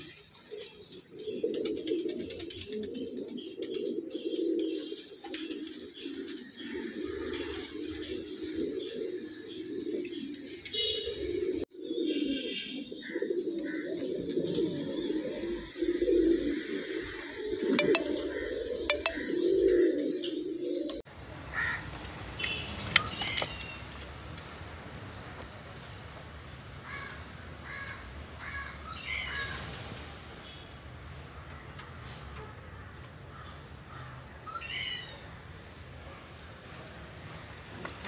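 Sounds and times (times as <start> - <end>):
pigeons cooing: 0.0 - 21.0
high bird calls: 14.7 - 20.5.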